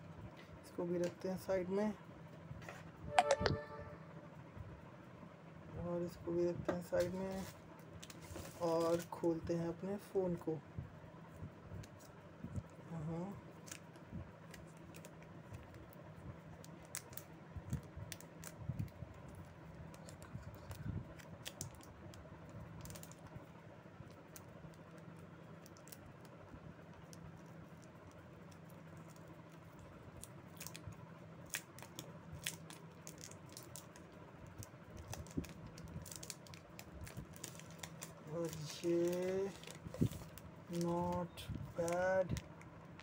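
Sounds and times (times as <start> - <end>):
steady low hum: 0.0 - 43.0
plastic sleeve clicks and crinkles: 31.5 - 42.5.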